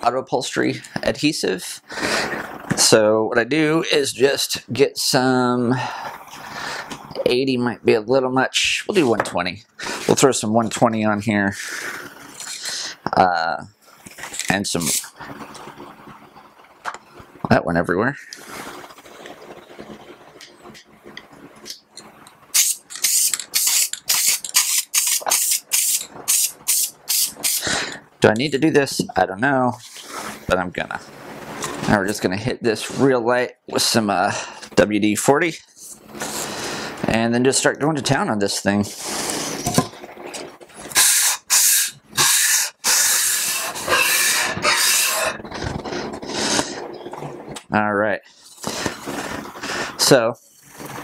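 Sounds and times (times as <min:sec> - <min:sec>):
aerosol can spraying bursts: 0:22.5 - 0:27.7, 0:40.9 - 0:45.2
metal plane scraping on sandpaper: 0:43.3 - 0:46.7.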